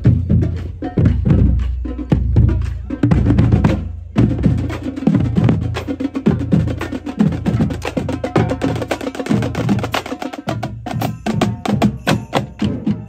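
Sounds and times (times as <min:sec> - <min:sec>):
bass drums: 0:00.0 - 0:13.0
snare drums: 0:00.0 - 0:13.0.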